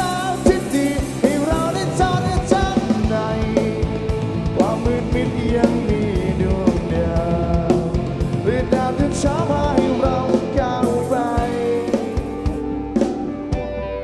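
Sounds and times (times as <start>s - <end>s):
person singing: 0.0s - 12.9s
steady drum beat: 0.0s - 13.7s
live rock band playing: 0.0s - 14.0s.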